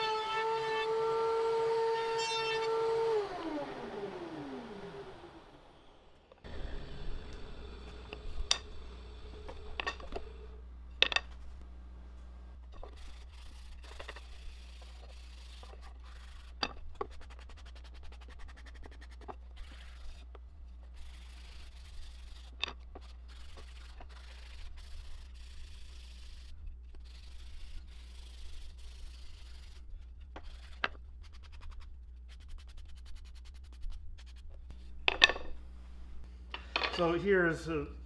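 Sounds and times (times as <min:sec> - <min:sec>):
low hum: 0:02.2 - 0:38.0
wooden pieces knocking: 0:11.0 - 0:11.5
sanding pad rubbing wood: 0:12.8 - 0:35.0.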